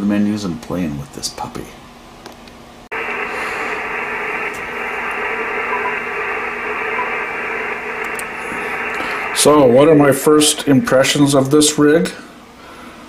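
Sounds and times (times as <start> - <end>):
radio band noise hiss: 2.9 - 10.6
faint steady tone: 3.0 - 9.4.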